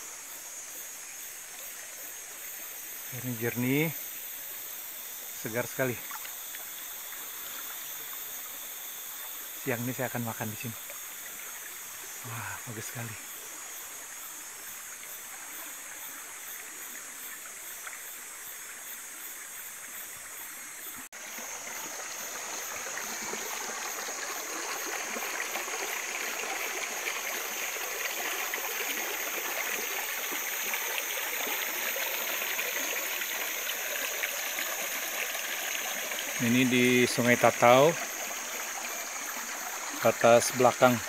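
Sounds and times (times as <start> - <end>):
stream babbling over stones: 9.2 - 13.4, 21.2 - 41.0.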